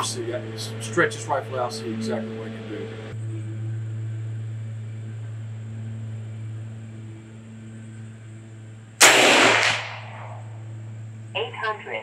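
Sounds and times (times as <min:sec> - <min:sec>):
steady low hum: 0:00.0 - 0:12.0
air rifle shot: 0:09.0 - 0:10.5.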